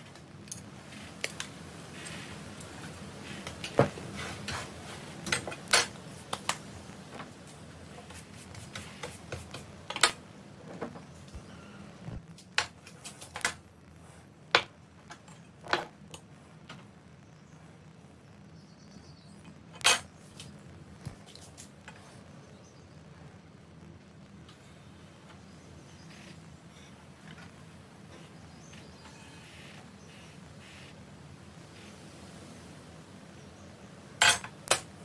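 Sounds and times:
tools set down on wooden bench: 34.2 - 34.8.

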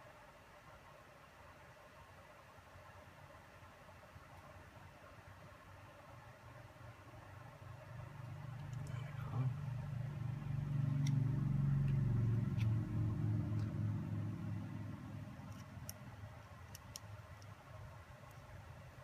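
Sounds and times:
vehicle engine hum passing: 7.7 - 16.3
small parts clicking: 15.4 - 17.6.

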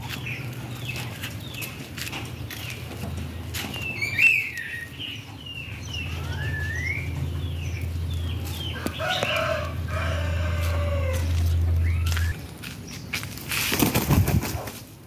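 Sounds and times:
small birds chirping: 0.0 - 13.8
rising bird whistle: 3.9 - 5.0, 6.0 - 7.2
rooster crowing: 8.6 - 12.2.

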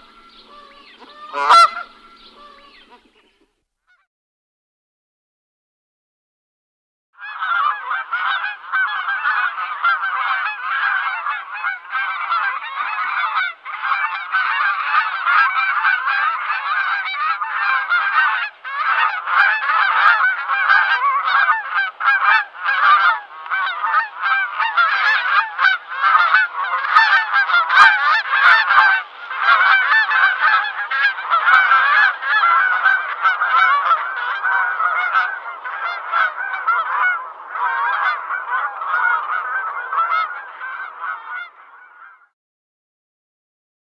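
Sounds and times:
geese honking: 0.0 - 4.1, 7.2 - 42.3.

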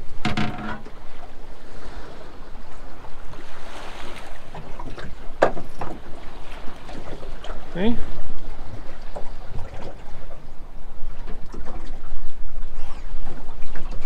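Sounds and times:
wind and sea rushing: 0.0 - 14.0.

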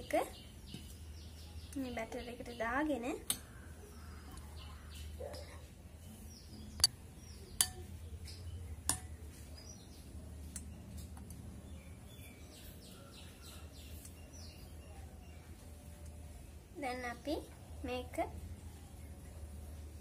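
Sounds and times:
birds chirping: 0.0 - 20.0.

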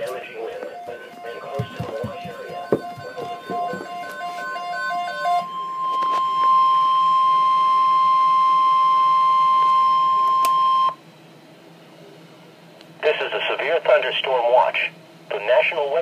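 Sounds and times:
weather alert radio steady tone: 0.0 - 11.0, 13.0 - 16.0
beeping alternating low and high: 0.5 - 10.9.

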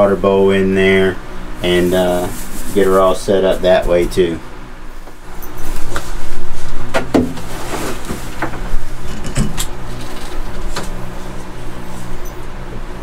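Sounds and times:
steady low hum: 0.0 - 13.0
wooden enclosure knocks and clunks: 6.9 - 7.5.

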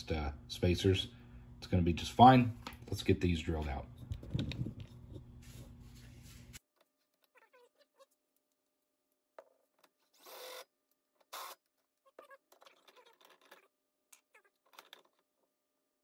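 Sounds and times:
handling clicks and rustles: 3.5 - 5.8.

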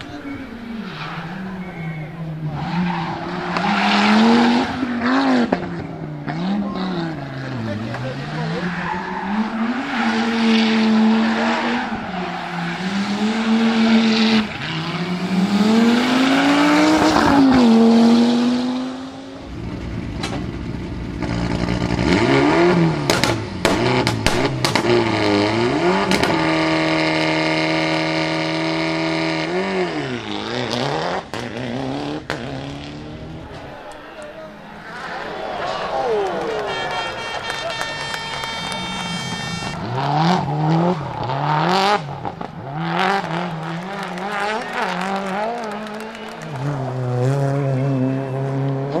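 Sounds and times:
rally car engine revving: 0.0 - 33.9, 36.0 - 49.0
exhaust pops: 19.6 - 22.0, 23.0 - 25.4
engine revved in blips: 36.5 - 49.0.

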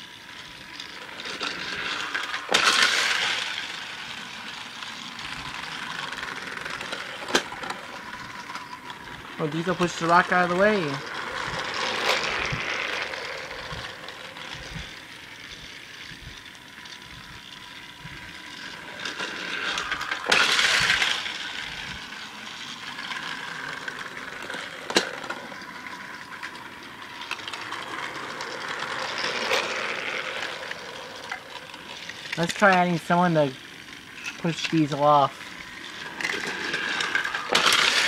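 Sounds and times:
toy train clattering on track: 0.0 - 38.0
toy train motor whirring: 0.0 - 38.0.

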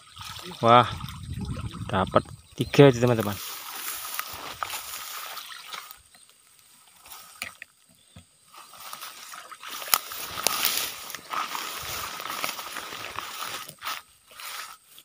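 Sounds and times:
water sloshing: 0.0 - 2.6, 8.7 - 13.9.

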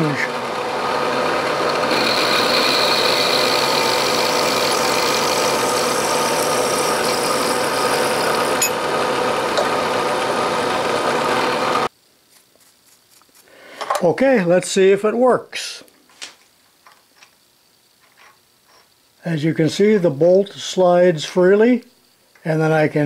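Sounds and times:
milling machine cutting metal: 0.0 - 11.9.

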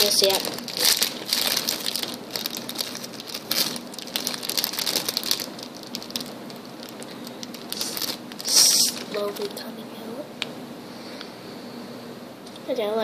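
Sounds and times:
plastic wrapper crinkling: 0.0 - 9.7.

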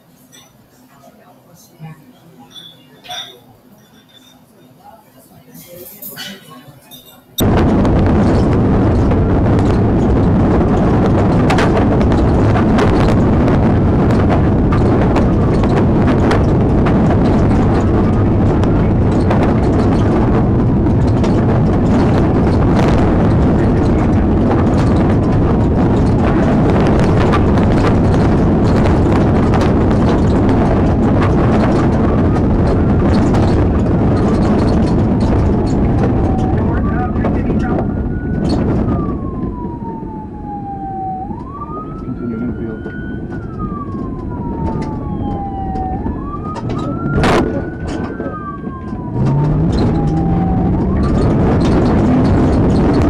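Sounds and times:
vehicle engine rumbling: 0.0 - 53.0
vehicle knocking and clattering: 7.4 - 39.8, 41.3 - 53.0
police siren wailing: 7.4 - 53.0.

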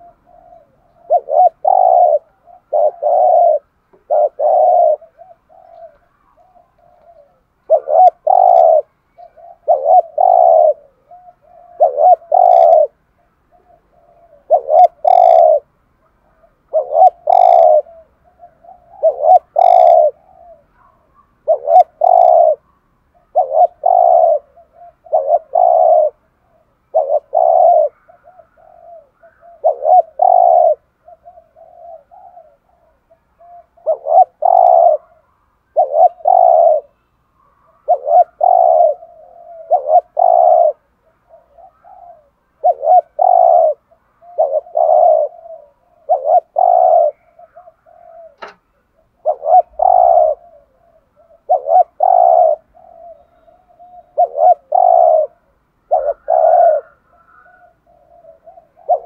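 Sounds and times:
dove cooing: 0.0 - 59.0.

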